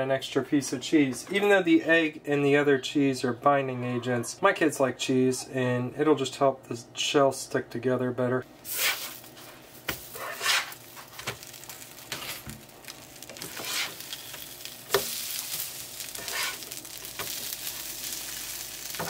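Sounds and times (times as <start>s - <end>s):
tortillas sizzling on griddle: 8.6s - 19.0s
plastic spatula scraping griddle: 8.7s - 11.4s, 12.0s - 14.1s, 16.0s - 17.4s.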